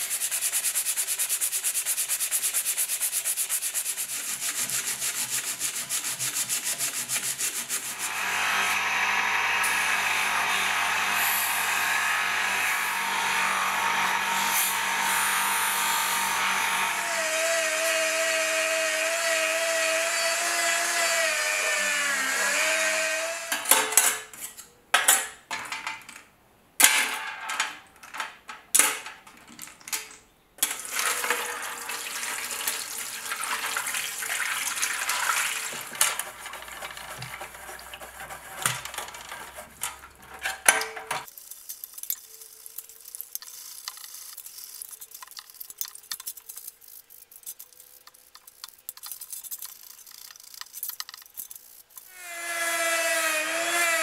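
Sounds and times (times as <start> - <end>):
sandpaper rubbing on steel: 0.0 - 8.2, 35.0 - 40.7.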